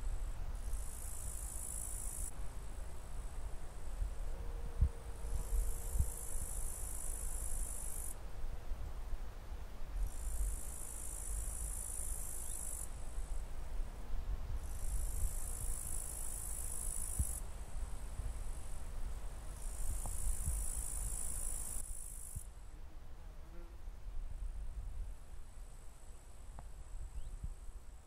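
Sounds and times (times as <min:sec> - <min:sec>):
high-pitched insect buzzing: 0:10.1 - 0:12.8.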